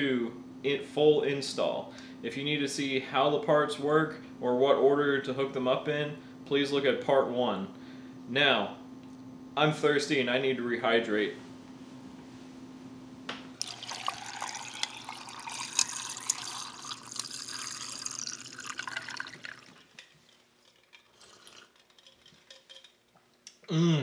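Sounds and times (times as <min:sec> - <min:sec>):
ice clinking against glass: 0:13.6 - 0:20.1
water running into a glass: 0:13.6 - 0:20.2.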